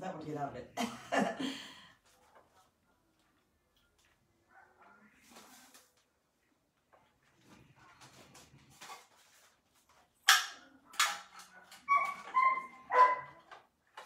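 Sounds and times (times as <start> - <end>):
dog barking: 4.5 - 5.2, 11.4 - 13.5.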